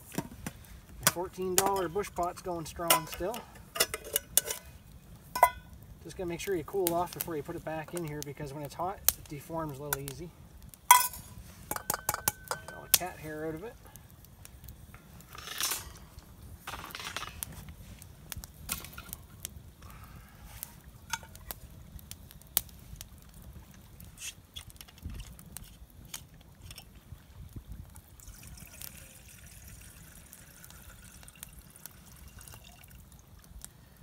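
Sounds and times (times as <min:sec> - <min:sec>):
campfire crackling and popping: 0:00.0 - 0:34.0
water pouring into a pot: 0:28.1 - 0:33.4.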